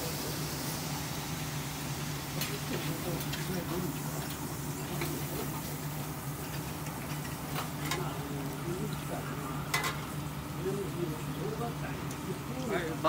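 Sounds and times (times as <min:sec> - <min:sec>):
steady low hum: 0:00.0 - 0:13.0
faint voices: 0:02.3 - 0:06.3, 0:07.5 - 0:13.0
light clicks of dishes: 0:09.7 - 0:10.0.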